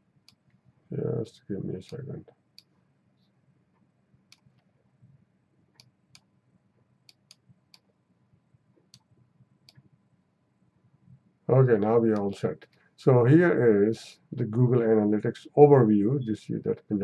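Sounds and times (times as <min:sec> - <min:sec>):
computer mouse clicking: 0:04.3 - 0:04.7, 0:07.1 - 0:07.9.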